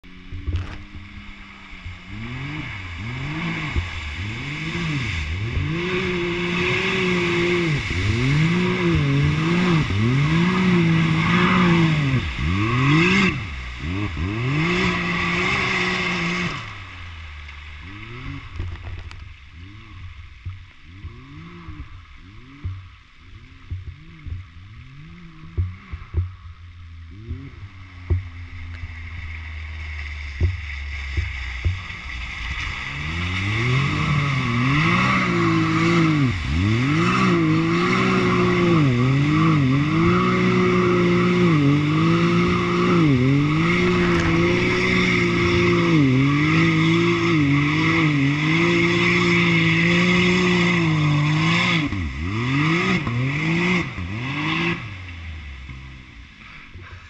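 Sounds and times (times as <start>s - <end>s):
water and mud splashing: 0.0s - 57.0s
engine revving hard: 2.0s - 17.0s, 17.8s - 18.9s, 20.9s - 22.8s, 29.9s - 57.0s.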